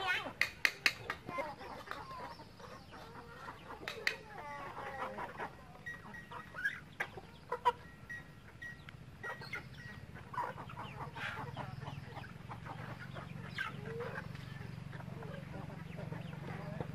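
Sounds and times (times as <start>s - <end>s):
chickens clucking: 0.0s - 16.9s
sharp clicks: 0.4s - 1.2s.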